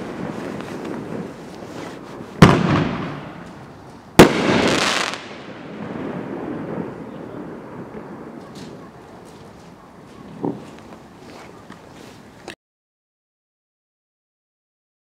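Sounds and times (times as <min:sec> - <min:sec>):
firework sizzle: 0:00.0 - 0:08.8.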